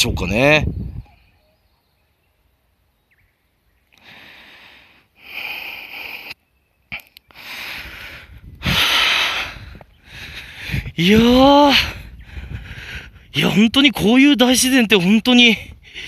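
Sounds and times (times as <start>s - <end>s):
person breathing heavily: 4.0s - 11.0s, 11.7s - 13.3s, 15.6s - 16.0s.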